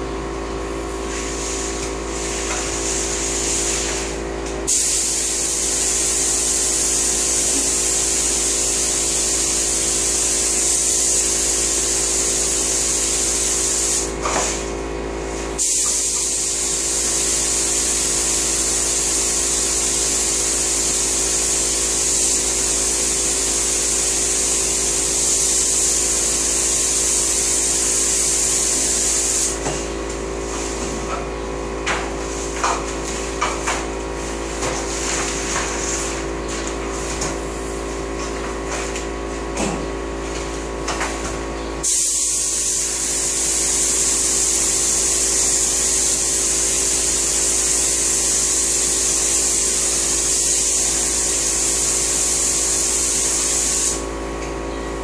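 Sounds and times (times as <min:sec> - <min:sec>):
spray gun hissing: 0:01.0 - 0:14.7, 0:15.4 - 0:29.6, 0:41.8 - 0:54.1.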